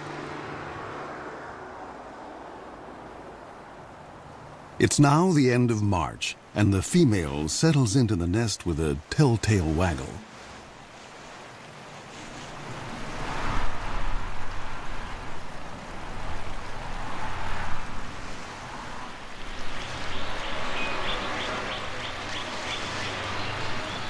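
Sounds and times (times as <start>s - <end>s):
wind gusting through treetops: 0.0s - 24.0s.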